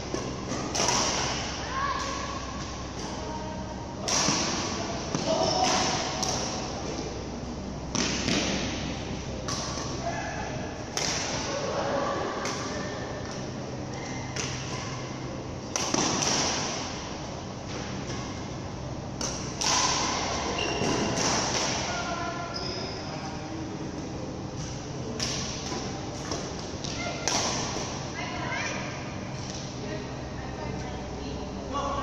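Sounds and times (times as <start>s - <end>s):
steady hum: 0.0s - 32.0s
racket hitting shuttlecock: 0.1s - 1.6s, 4.0s - 6.7s, 10.9s - 11.5s, 15.7s - 16.9s, 19.2s - 21.9s, 25.2s - 28.0s.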